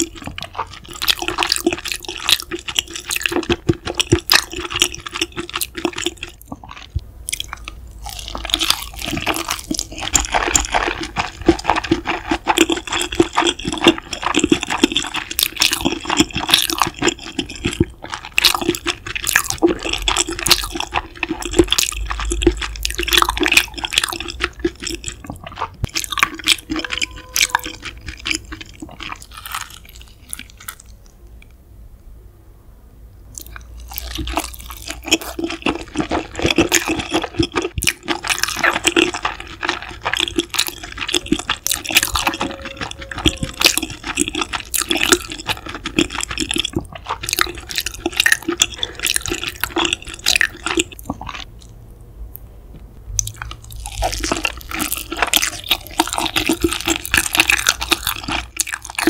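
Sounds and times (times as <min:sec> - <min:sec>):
wet chewing and mouth sounds: 0:00.0 - 0:31.6, 0:33.3 - 0:59.0.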